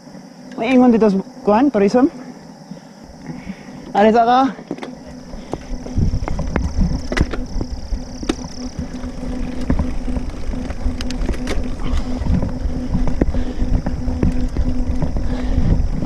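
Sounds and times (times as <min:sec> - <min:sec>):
steady low hum: 0:00.0 - 0:16.0
bike rattling and knocking: 0:04.6 - 0:16.0
wind rumbling on microphone: 0:05.0 - 0:16.0.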